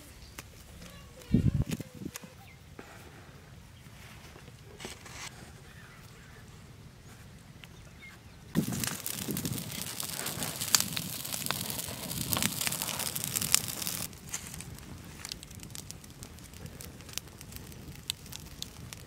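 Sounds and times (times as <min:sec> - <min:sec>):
fire crackling and popping: 0:08.5 - 0:19.0.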